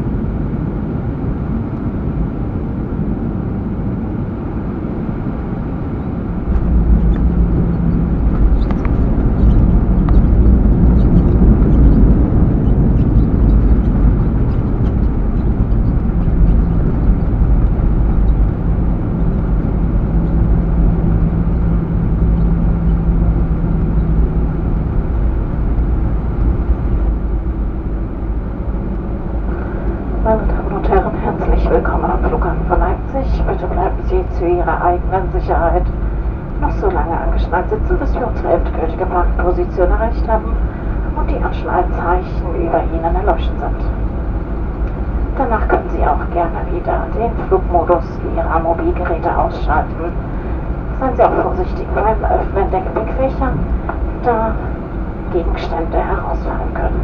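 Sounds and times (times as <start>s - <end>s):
airplane landing rumble: 0.0s - 57.0s
aircraft cabin rattling: 6.2s - 35.7s.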